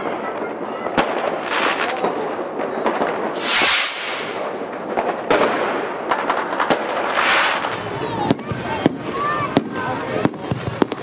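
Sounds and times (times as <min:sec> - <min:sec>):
fireworks crackling: 0:00.2 - 0:11.0
firework hiss: 0:03.2 - 0:05.2, 0:06.9 - 0:07.8
firework shells bursting: 0:03.3 - 0:05.3.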